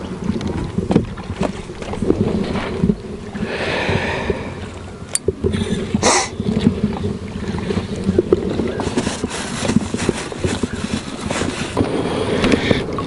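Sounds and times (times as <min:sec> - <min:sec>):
wind rumble on microphone: 0:00.0 - 0:13.0
knocks and rubbing on boat floor: 0:08.4 - 0:11.9.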